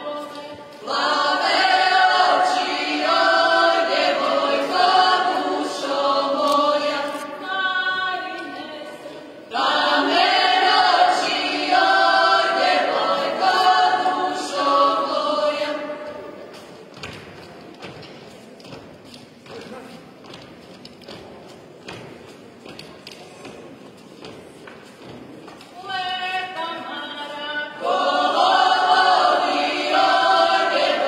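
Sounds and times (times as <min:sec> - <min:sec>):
group singing unaccompanied: 0:00.0 - 0:17.1, 0:26.4 - 0:31.0.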